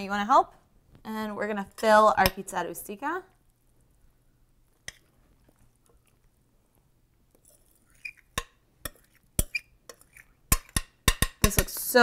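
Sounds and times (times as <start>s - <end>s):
metal spoon scraping glass bowl: 7.4s - 10.8s.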